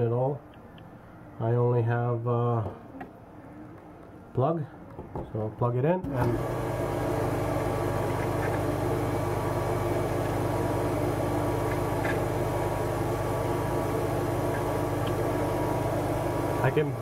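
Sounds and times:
surface grinder humming: 6.2s - 17.0s.

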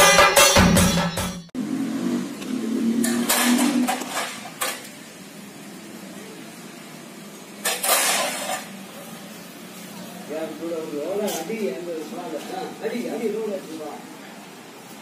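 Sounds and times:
swords clashing on metal shields: 3.0s - 5.0s, 7.6s - 8.7s.

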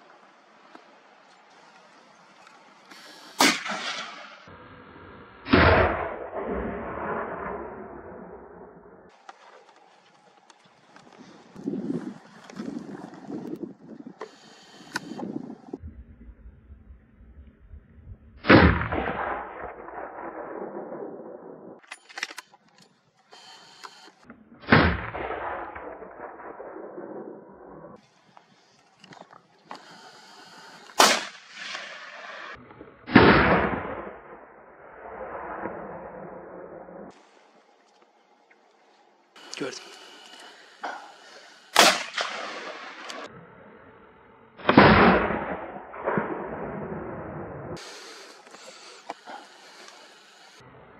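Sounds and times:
rifle shots with echo: 3.4s - 4.5s, 5.5s - 8.6s, 18.4s - 21.6s, 31.0s - 37.1s, 40.8s - 43.3s, 44.6s - 47.5s
sharp clicks: 21.8s - 24.2s.

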